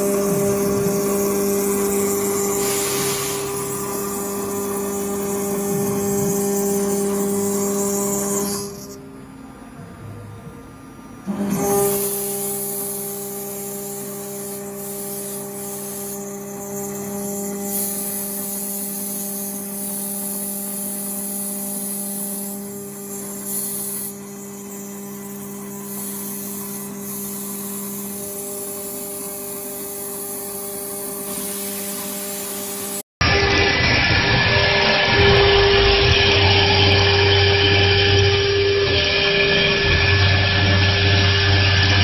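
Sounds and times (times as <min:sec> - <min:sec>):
cutter milling metal sheet: 0:00.0 - 0:09.0, 0:11.2 - 0:42.0
router spindle whining: 0:00.0 - 0:09.1.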